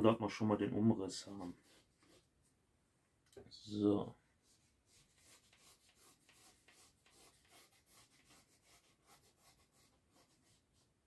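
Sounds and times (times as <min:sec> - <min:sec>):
pen scratching on cardboard: 0:04.9 - 0:10.9.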